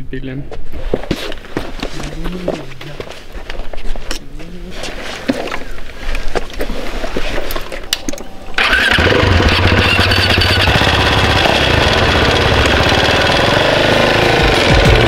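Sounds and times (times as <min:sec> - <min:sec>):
motorcycle engine starting and idling: 0:08.6 - 0:15.0.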